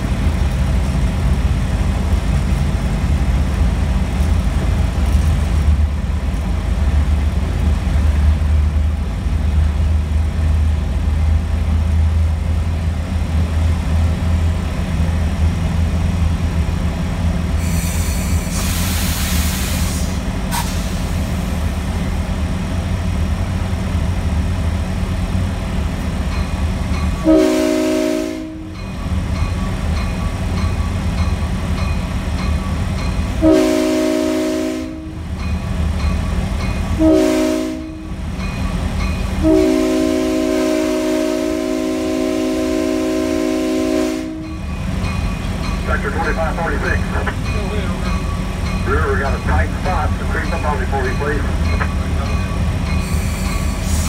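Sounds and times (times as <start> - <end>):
diesel locomotive engine running: 0.0 - 54.0
hiss: 17.6 - 21.8, 53.0 - 54.0
train air horn blasts: 27.2 - 28.8, 33.4 - 35.2, 37.0 - 38.1, 39.4 - 44.5.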